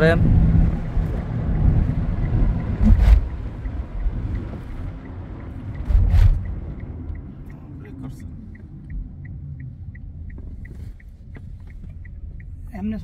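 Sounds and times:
road and tyre rumble: 0.0 - 13.0.

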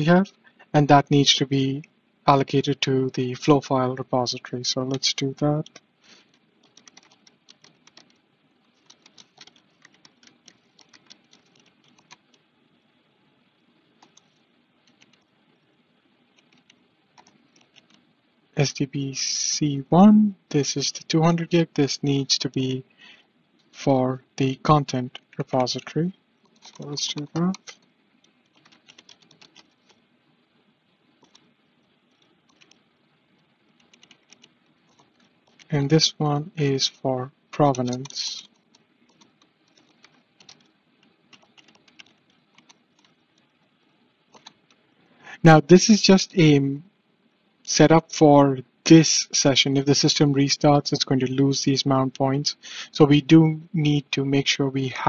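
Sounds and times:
faint keyboard typing: 4.8 - 12.5, 13.4 - 18.1, 20.5 - 23.8, 24.4 - 36.9, 37.6 - 45.4, 50.0 - 52.9.

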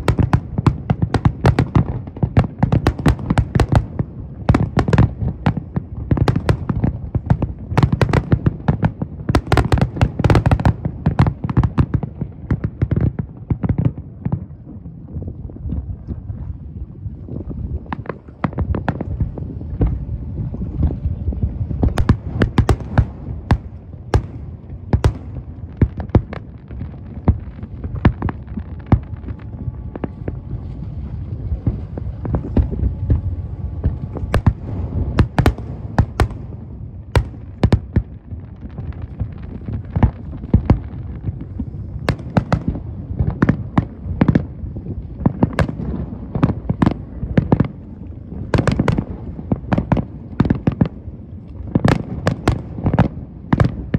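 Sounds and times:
continuous low rumble: 0.0 - 53.9
fireworks bangs and crackles: 0.0 - 53.9.

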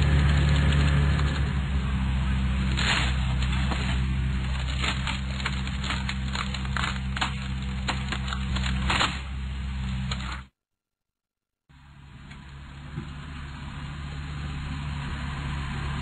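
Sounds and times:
wood cracking and creaking: 0.0 - 1.6, 2.5 - 10.5
diesel engine running: 0.0 - 10.4, 11.8 - 16.0.

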